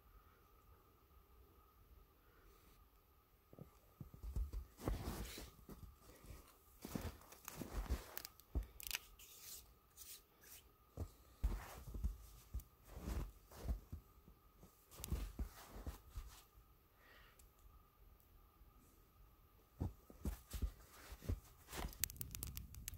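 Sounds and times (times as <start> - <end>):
tinder crackling as it burns: 20.6 - 22.9.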